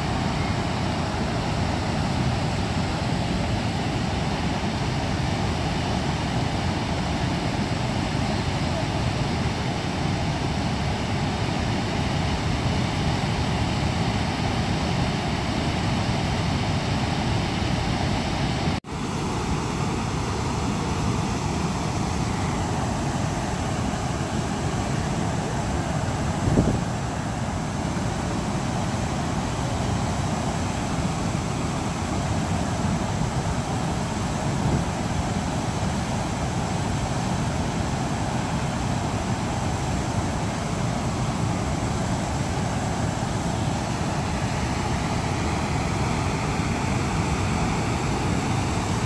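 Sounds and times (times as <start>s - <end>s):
water rushing over dam spillway: 0.0s - 49.0s.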